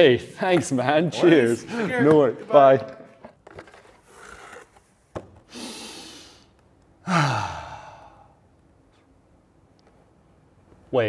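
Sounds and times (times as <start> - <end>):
man gasping: 5.5 - 8.4
man sighing: 5.5 - 8.4.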